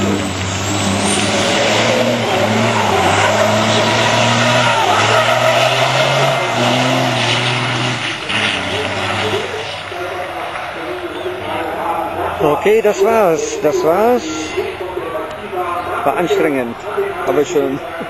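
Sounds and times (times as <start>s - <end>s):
diesel truck engine revving high: 0.0s - 12.6s
tyres screeching: 0.0s - 14.9s.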